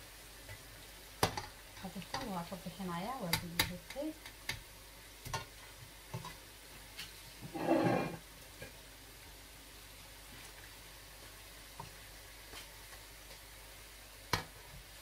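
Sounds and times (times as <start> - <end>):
food deep-frying in oil: 0.0 - 15.0
utensils clicking against pan: 1.2 - 2.4.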